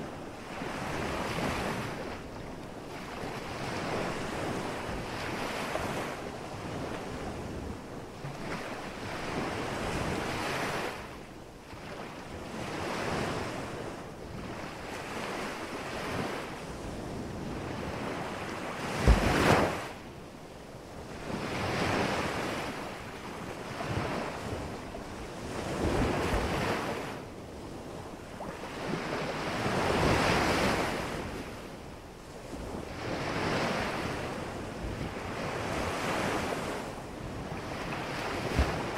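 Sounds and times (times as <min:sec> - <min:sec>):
surf washing on beach: 0:00.0 - 0:38.9
wind buffeting microphone: 0:32.4 - 0:38.9.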